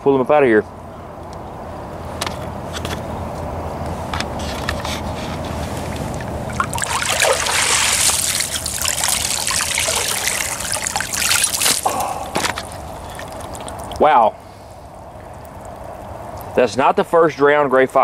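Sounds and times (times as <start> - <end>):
water sloshing and splashing: 4.7 - 14.1, 14.9 - 16.6.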